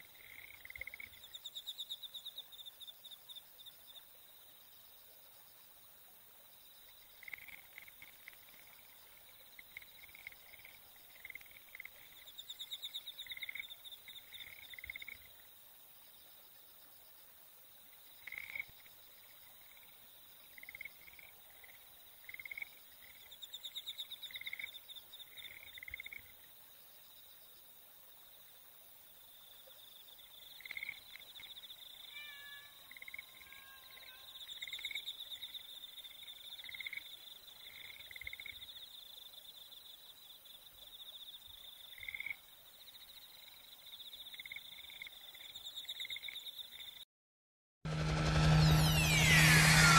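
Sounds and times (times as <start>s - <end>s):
buzzing trills: 47.9s - 49.9s
whistled glides: 47.9s - 49.9s.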